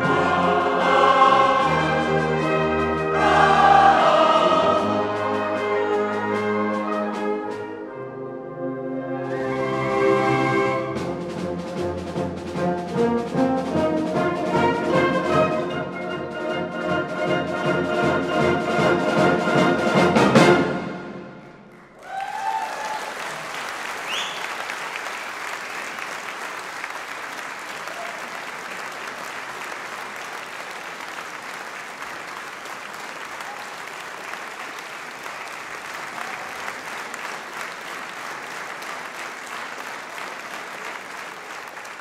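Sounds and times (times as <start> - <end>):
audience applause: 21.7 - 42.0
whistle: 24.0 - 24.6.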